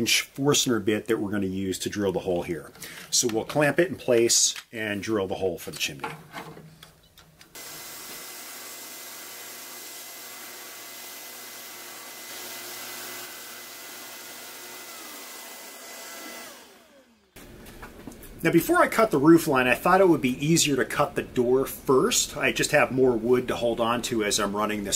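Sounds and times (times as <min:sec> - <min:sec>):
drill press motor whirr: 0:07.6 - 0:17.8
shop vacuum suction: 0:07.6 - 0:18.4.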